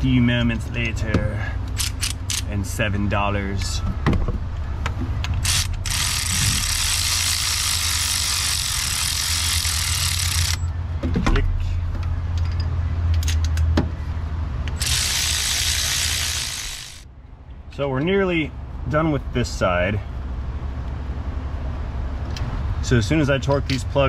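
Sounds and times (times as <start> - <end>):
tool and metal clicks: 1.7 - 2.5, 5.2 - 10.6, 12.3 - 13.8, 14.7 - 17.0.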